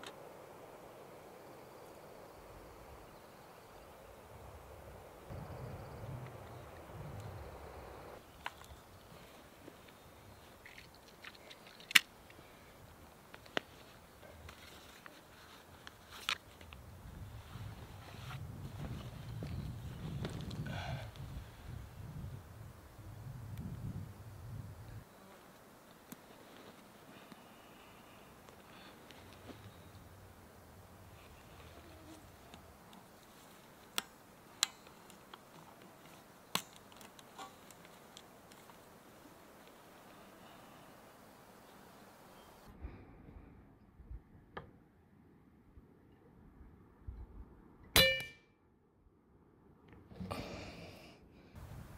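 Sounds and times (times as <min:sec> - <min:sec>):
faint outdoor background: 0:00.0 - 0:51.9
clicks of gear being handled: 0:10.6 - 0:12.4, 0:32.5 - 0:38.8.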